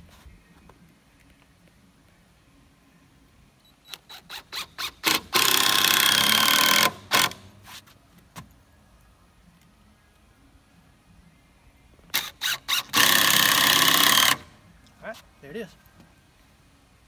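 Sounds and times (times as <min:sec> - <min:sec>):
cordless drill driving screw into wood: 0:03.9 - 0:07.5, 0:12.1 - 0:14.5.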